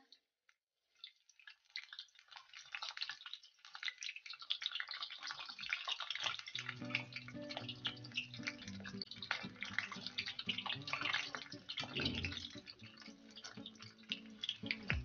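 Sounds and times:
food deep-frying in hot oil: 0:00.0 - 0:15.0
background music: 0:06.6 - 0:15.0.

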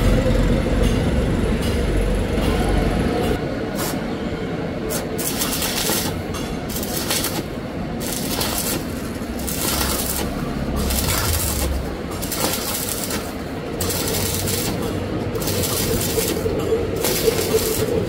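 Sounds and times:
welding arc crackling and hissing: 0:03.7 - 0:04.0, 0:04.9 - 0:18.0.

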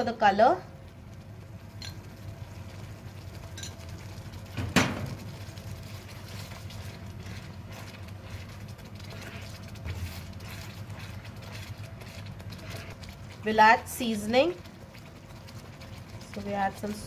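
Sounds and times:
steady low hum: 0:00.0 - 0:17.0
puree spooned into pan: 0:01.8 - 0:17.0
spatula scraping in sauce: 0:05.9 - 0:13.3.

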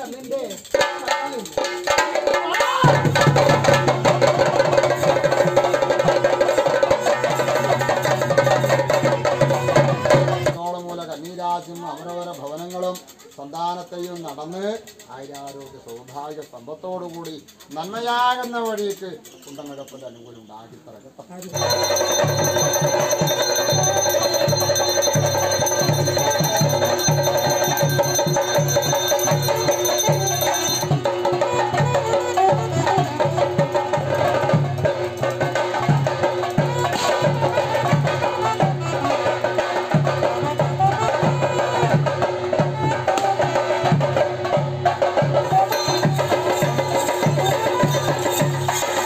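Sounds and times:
held higher tone: 0:21.6 - 0:31.8, 0:45.5 - 0:49.0
low drumbeat: 0:21.6 - 0:49.0.

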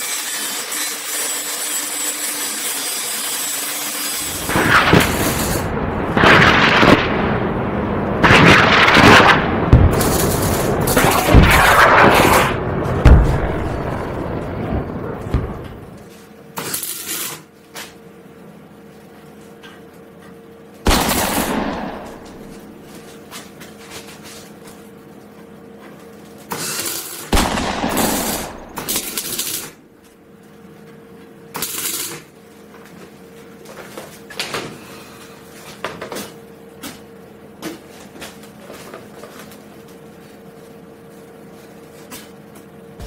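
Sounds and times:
welding arc crackling: 0:00.0 - 0:17.5, 0:20.9 - 0:23.0, 0:26.5 - 0:29.8, 0:31.5 - 0:32.3
faint steady hum: 0:04.2 - 0:43.0.

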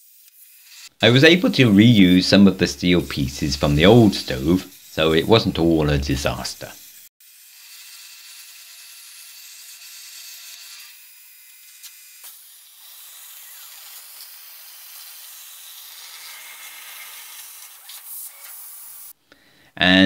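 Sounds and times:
plasma cutter hissing: 0:02.2 - 0:07.1.

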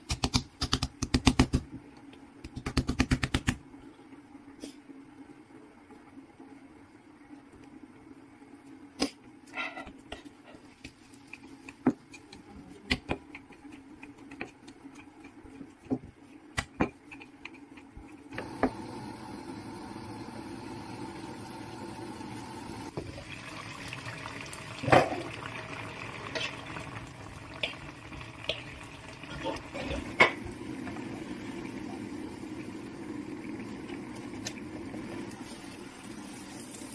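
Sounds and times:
stew bubbling in a wok: 0:17.0 - 0:36.9.

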